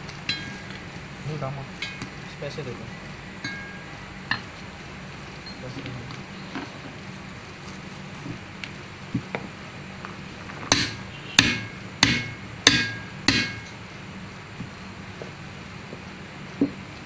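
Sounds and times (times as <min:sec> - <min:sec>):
hammer striking metal with ring: 0:00.3 - 0:00.8, 0:03.4 - 0:04.5, 0:10.7 - 0:13.8.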